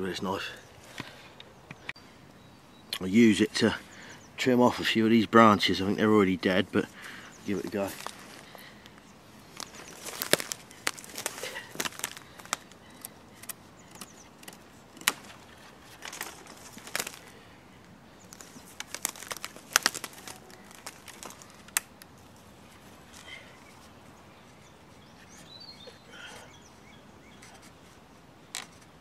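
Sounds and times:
dry twigs crackling and snapping: 6.8 - 25.9.

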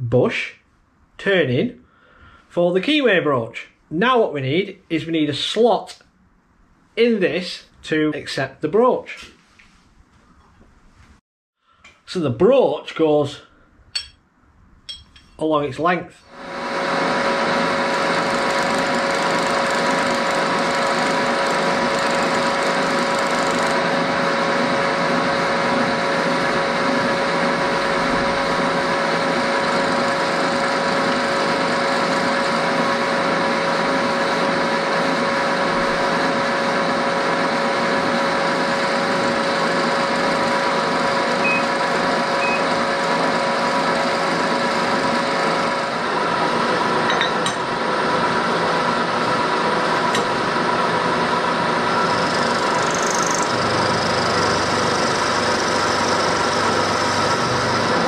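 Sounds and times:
steady machine whine: 16.2 - 58.0
milling machine cutting metal: 16.4 - 58.0.

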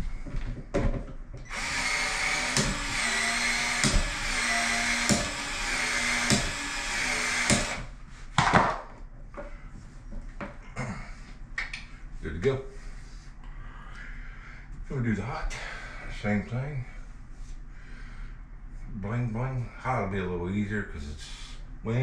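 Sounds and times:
expansion tool motor running: 1.5 - 7.9.

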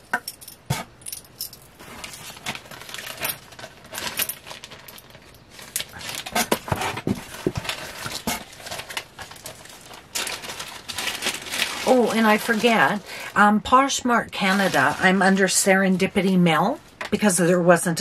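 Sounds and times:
jewelry beads clinking: 0.0 - 6.1.

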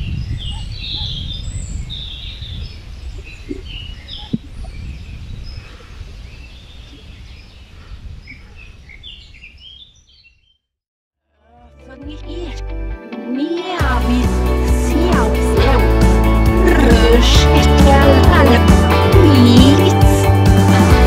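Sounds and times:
small birds chirping: 0.0 - 10.7.

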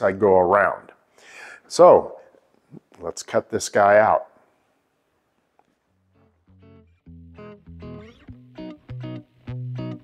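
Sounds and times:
background guitar music: 5.9 - 10.0.

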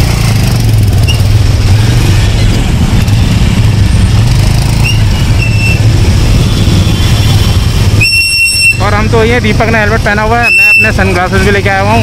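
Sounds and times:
motorcycle engine running: 0.0 - 8.0
traffic engines: 0.0 - 12.0.

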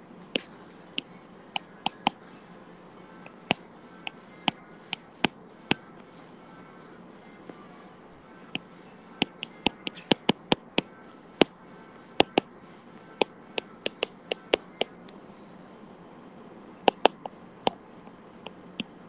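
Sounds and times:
stylus clicking on tablet screen: 8.6 - 15.2, 16.8 - 17.8.

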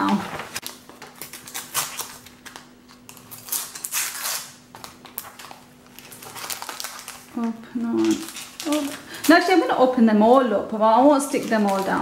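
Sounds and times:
wrapper crinkling and ripping: 0.0 - 9.8, 11.1 - 12.0.

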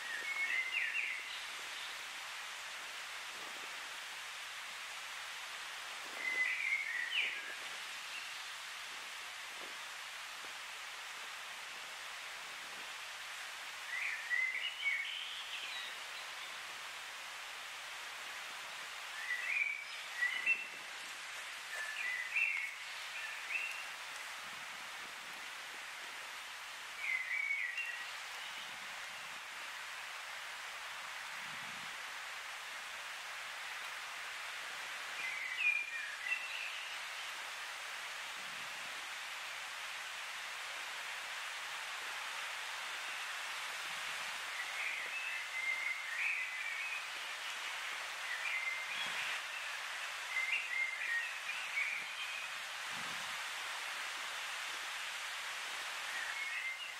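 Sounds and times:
songbird singing: 0.0 - 2.6, 6.1 - 8.8, 13.2 - 17.8, 18.4 - 25.6, 26.2 - 30.3, 34.4 - 37.6, 42.7 - 52.8, 55.9 - 56.9
steady hiss: 0.0 - 56.9.

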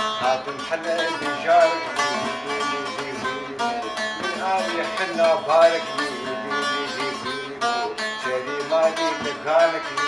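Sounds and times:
man singing: 0.0 - 10.0
saz plucked notes: 0.0 - 10.0.

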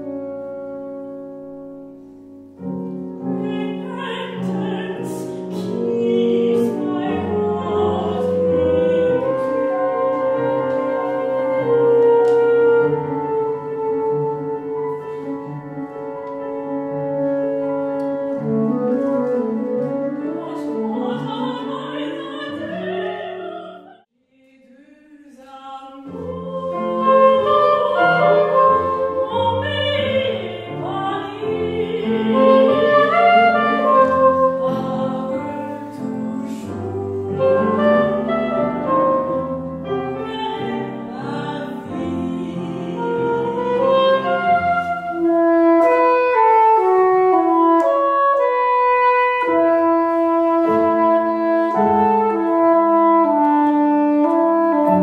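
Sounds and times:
piano: 0.0 - 24.1, 24.7 - 55.0
soprano saxophone: 0.0 - 24.1, 26.0 - 55.0
woman singing operatically: 3.4 - 12.0, 20.0 - 39.4, 40.0 - 45.5.

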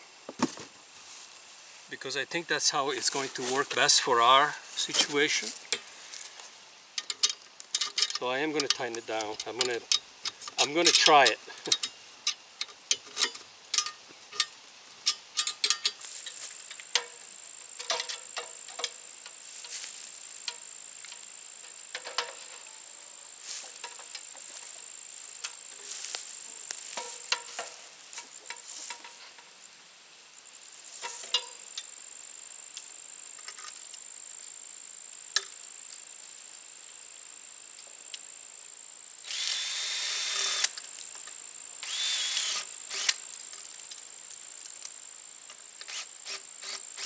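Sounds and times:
sharp metal clicks and taps: 7.0 - 14.5.

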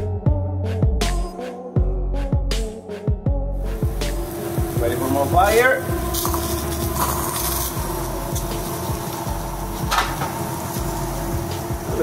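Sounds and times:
liquid hissing on hot griddle: 3.7 - 12.0
steady background hum: 3.7 - 12.0.

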